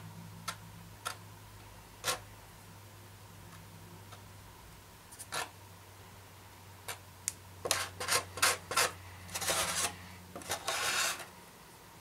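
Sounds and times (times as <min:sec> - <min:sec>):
stick scraping gel on foam: 0:07.7 - 0:11.3.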